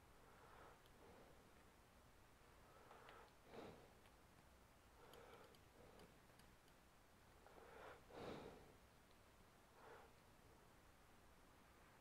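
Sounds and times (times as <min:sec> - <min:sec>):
soft breaths: 0:00.0 - 0:12.0
faint tweezer ticks: 0:02.8 - 0:03.4, 0:04.0 - 0:06.9.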